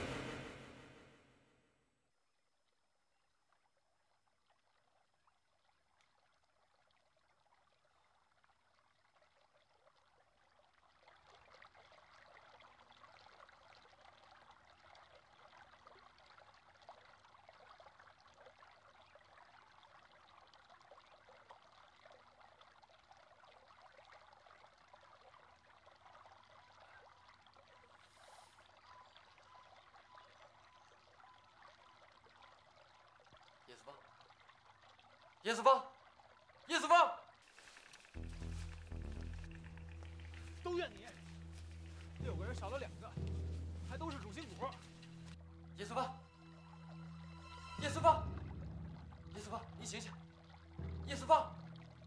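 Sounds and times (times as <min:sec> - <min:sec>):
faint trickling water: 0:02.1 - 0:52.0.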